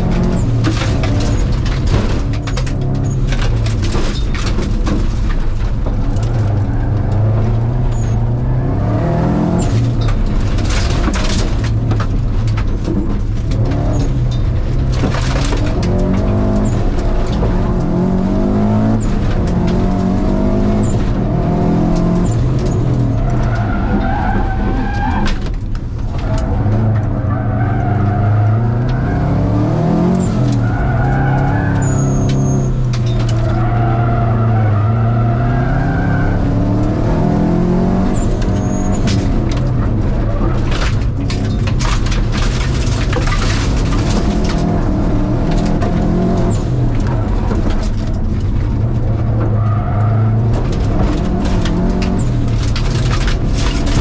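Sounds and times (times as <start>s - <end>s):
car engine revving: 0.0s - 54.0s
tyres on loose gravel: 38.1s - 54.0s.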